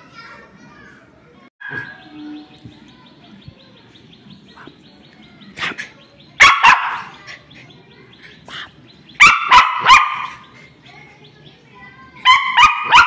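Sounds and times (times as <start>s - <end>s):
small dog barking: 6.4s - 7.2s, 9.2s - 10.4s, 12.2s - 13.0s.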